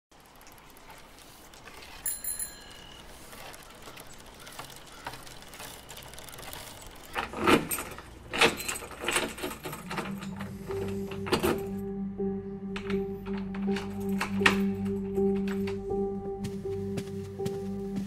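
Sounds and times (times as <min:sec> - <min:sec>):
faint outdoor ambience: 0:00.1 - 0:18.0
bicycle bell ringing: 0:02.0 - 0:03.1.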